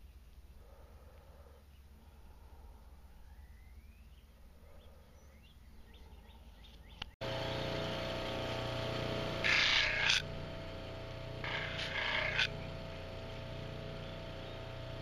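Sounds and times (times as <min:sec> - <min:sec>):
faint bird chirps: 0:00.0 - 0:07.2
buffer motor whining: 0:07.2 - 0:15.0.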